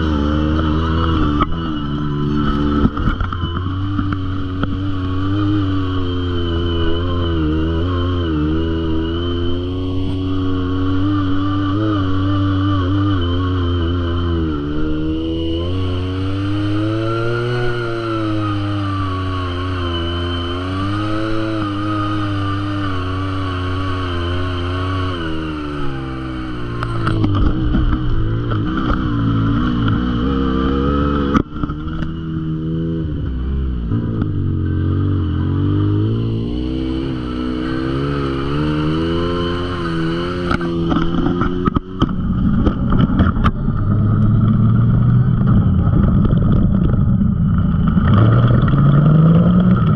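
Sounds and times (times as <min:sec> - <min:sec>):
utility vehicle engine running: 0:00.0 - 0:49.9.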